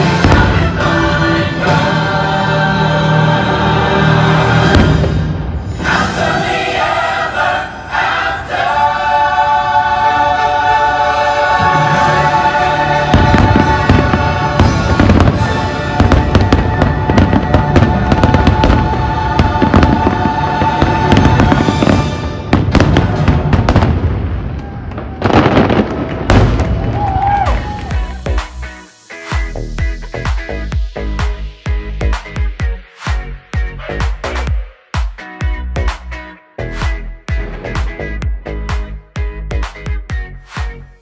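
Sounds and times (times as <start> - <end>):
fireworks bursting: 0.0 - 1.0, 4.6 - 6.3, 13.0 - 29.5
orchestra and choir chord: 0.0 - 23.6.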